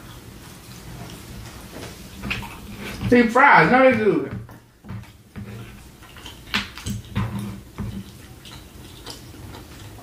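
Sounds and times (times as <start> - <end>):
chewing with mouth smacks: 2.3 - 3.0, 5.0 - 10.0.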